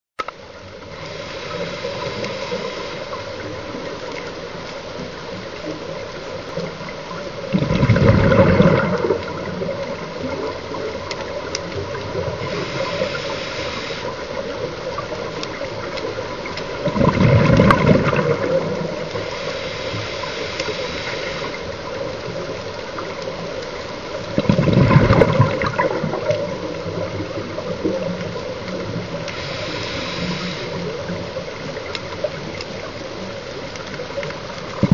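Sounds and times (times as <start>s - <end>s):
steady underwater hiss: 0.2s - 34.9s
rush of exhaled bubbles: 6.9s - 23.5s, 24.1s - 33.4s, 34.6s - 34.9s.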